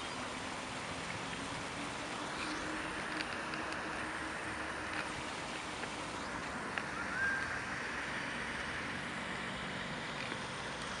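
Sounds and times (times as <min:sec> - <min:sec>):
fountain water splashing: 0:00.0 - 0:11.0
rising whistle: 0:06.9 - 0:07.6.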